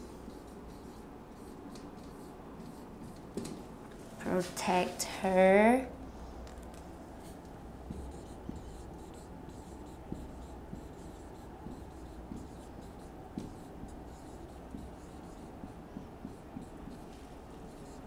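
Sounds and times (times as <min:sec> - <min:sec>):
marker scratching on whiteboard: 0:00.0 - 0:03.7, 0:07.2 - 0:18.0.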